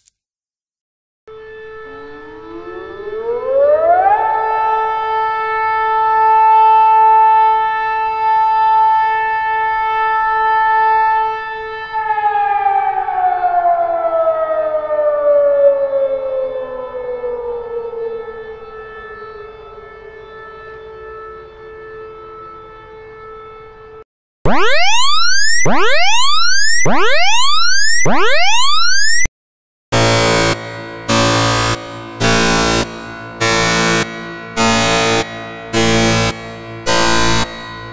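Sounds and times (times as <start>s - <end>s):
siren wailing: 1.3s - 29.3s, 30.0s - 37.9s.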